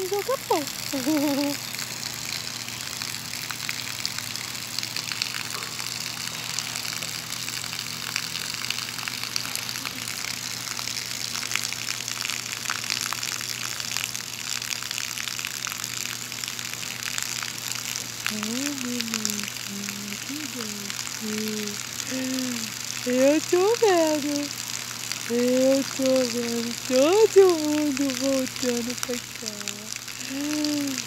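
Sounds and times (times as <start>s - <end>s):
water splashing onto stones: 23.8s - 31.0s.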